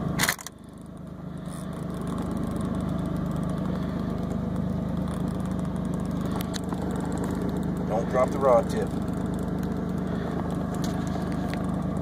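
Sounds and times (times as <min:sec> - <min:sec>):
outboard motor running: 0:00.0 - 0:12.0
sharp click: 0:00.2 - 0:00.6.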